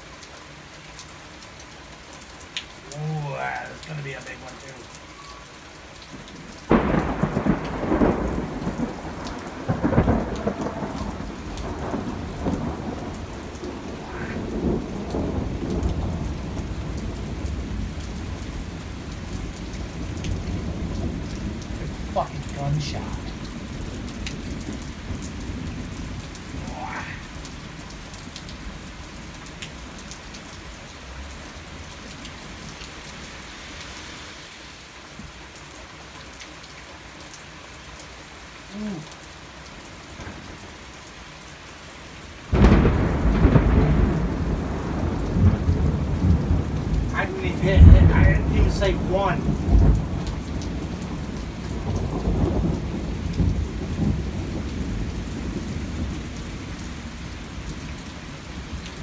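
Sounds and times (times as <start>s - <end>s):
heavy rain: 0.0s - 59.0s
thunder cracking and rumbling: 6.7s - 27.8s, 42.5s - 56.8s.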